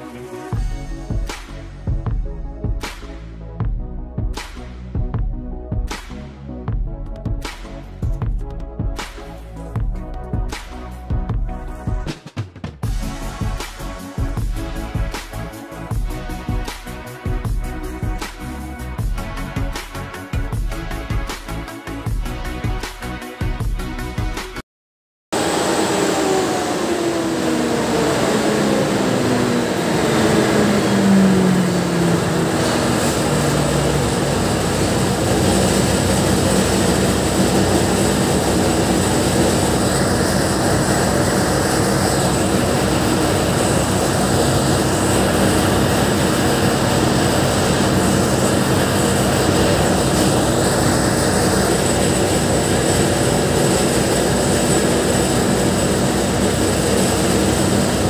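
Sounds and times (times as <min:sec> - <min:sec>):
diesel generator running: 0:25.4 - 0:58.0.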